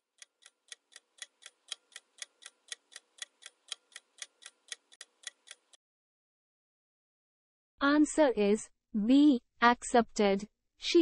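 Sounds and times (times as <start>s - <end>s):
clock ticking: 0.0s - 5.8s.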